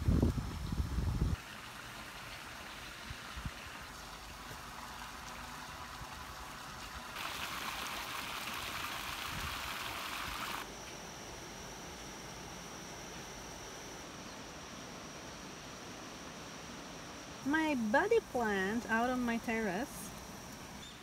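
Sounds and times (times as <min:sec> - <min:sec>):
outdoor hiss: 0:00.0 - 0:21.0
fountain water splashing: 0:01.4 - 0:10.7.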